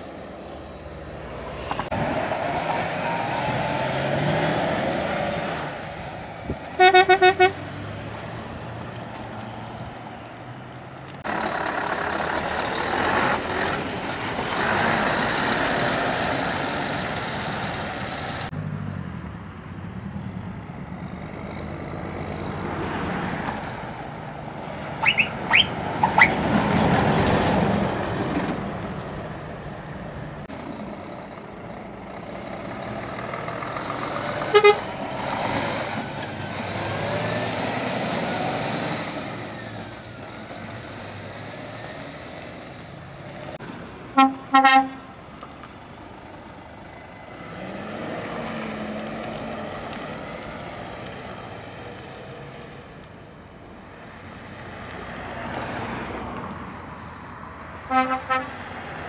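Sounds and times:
heavy lorries driving past: 0:00.0 - 0:59.0
horn toots: 0:06.7 - 0:07.6, 0:25.0 - 0:26.5, 0:34.5 - 0:34.9, 0:44.2 - 0:45.2, 0:57.9 - 0:58.6.

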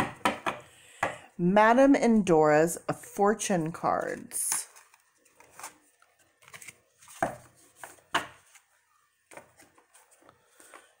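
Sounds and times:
cards tapping and rustling: 0:04.0 - 0:08.7, 0:09.3 - 0:11.0.

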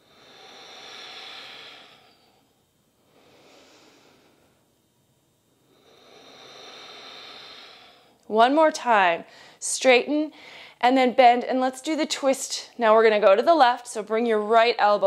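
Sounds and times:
woman breathing slowly: 0:00.0 - 0:04.7, 0:05.5 - 0:08.3, 0:09.3 - 0:09.6, 0:10.3 - 0:10.8.

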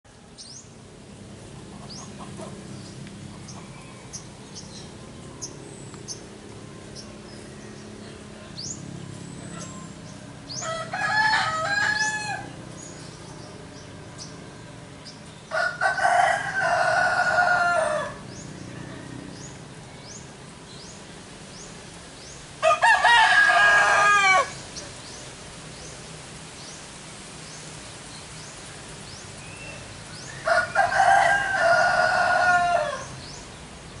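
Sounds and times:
small birds chirping: 0:00.1 - 0:22.7, 0:24.4 - 0:34.0
rooster crowing: 0:10.5 - 0:12.6, 0:15.5 - 0:18.2, 0:22.6 - 0:24.6, 0:30.4 - 0:33.2.

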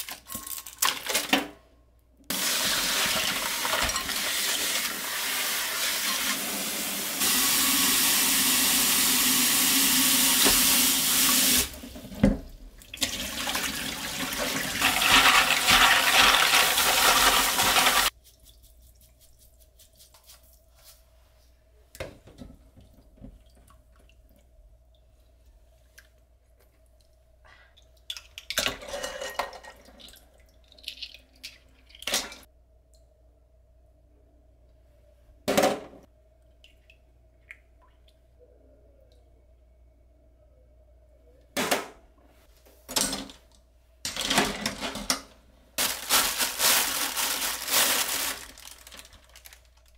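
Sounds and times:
tap water running into sink: 0:02.3 - 0:18.1
faint steady hum: 0:32.5 - 0:49.9.

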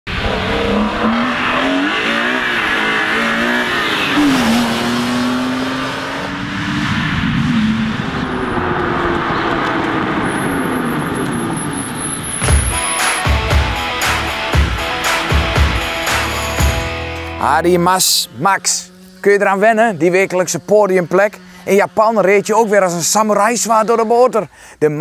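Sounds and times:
race car engine revving: 0:00.1 - 0:13.4, 0:17.4 - 0:24.1
music with a beat: 0:12.5 - 0:17.4.

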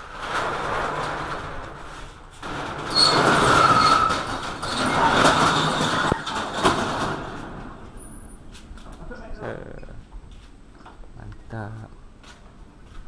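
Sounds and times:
metal roller shutter rattling: 0:00.0 - 0:08.3
shutter squeal: 0:02.9 - 0:06.3.

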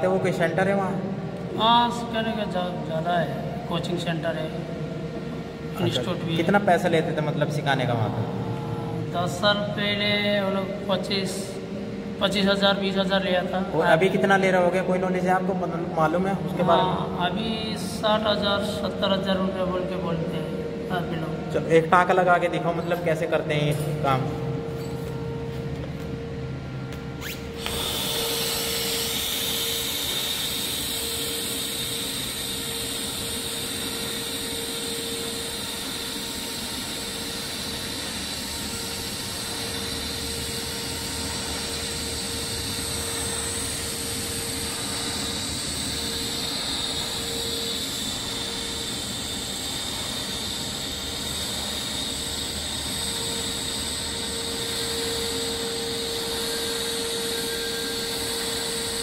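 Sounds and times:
steady hum: 0:00.0 - 0:59.0
welding arc hissing and buzzing: 0:27.2 - 0:59.0.

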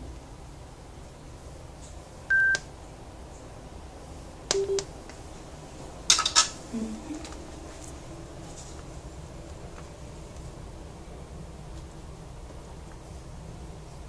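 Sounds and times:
speaker beep: 0:04.5 - 0:04.8.

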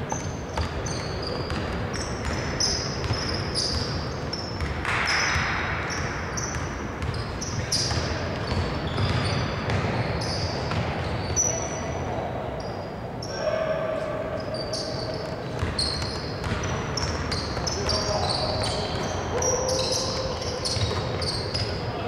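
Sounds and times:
sneaker squeaks: 0:00.0 - 0:22.0
basketball bouncing: 0:00.1 - 0:11.3, 0:15.6 - 0:19.1.

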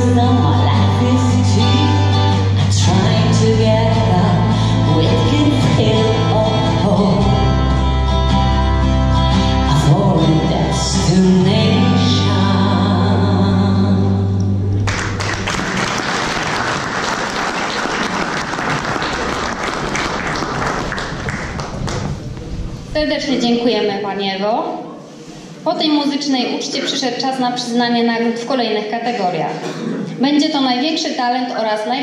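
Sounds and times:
woman singing into microphone: 0:00.0 - 0:07.7, 0:09.6 - 0:14.5
backing track with bass: 0:00.0 - 0:16.0
audience applauding: 0:14.8 - 0:22.4.

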